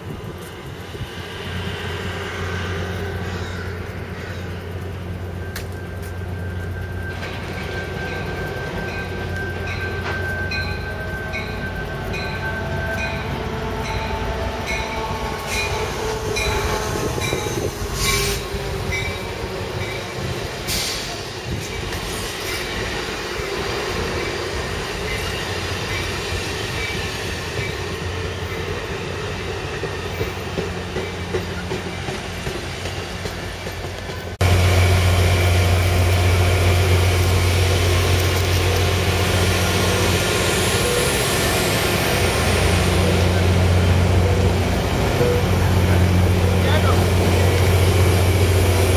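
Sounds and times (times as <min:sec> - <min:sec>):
diesel locomotive droning: 0:00.0 - 0:48.9
passenger train cars rolling: 0:00.0 - 0:48.9
train clanks: 0:00.0 - 0:48.9
wheel squeal: 0:15.4 - 0:20.1.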